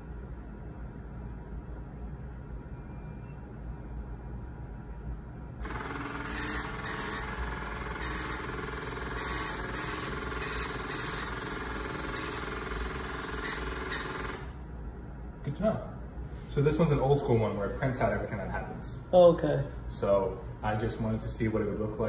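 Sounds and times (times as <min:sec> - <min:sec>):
strip printer printing: 0:05.6 - 0:14.6.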